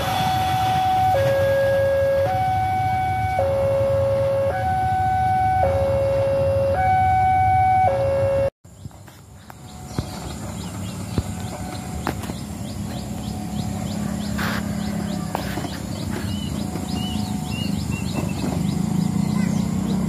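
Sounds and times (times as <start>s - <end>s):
level-crossing two-tone alarm: 0.0s - 8.5s
train rumble: 0.0s - 20.0s.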